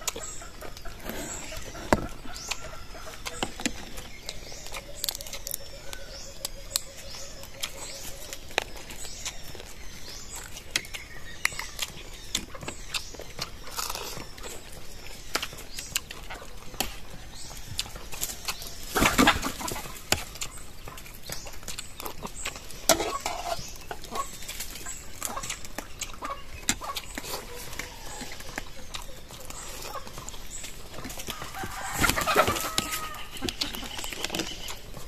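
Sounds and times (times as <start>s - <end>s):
crunching and handling: 0.0s - 35.0s
shellfish shells cracking: 4.1s - 6.1s.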